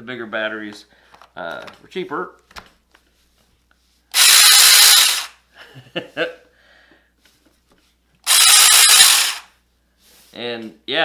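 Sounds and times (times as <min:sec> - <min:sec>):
mini chainsaw whirring: 0:04.1 - 0:05.4, 0:08.2 - 0:09.5.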